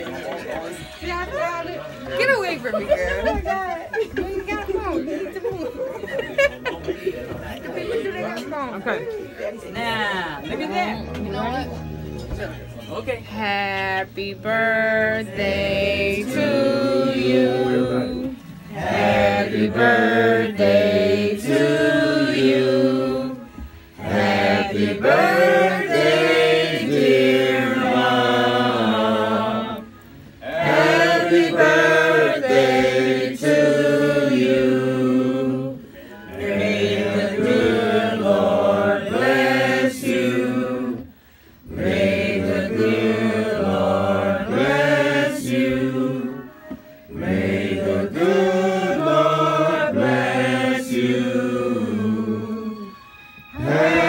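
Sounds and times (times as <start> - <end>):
group singing slow song: 13.3 - 54.0.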